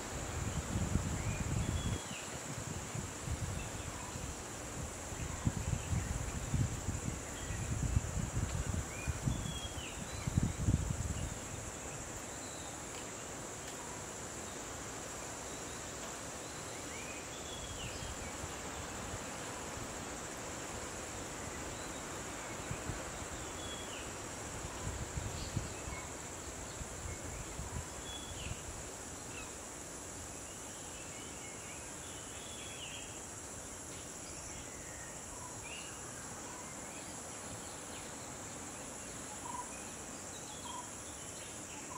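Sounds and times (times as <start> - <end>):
crickets chirping: 0.0 - 41.9.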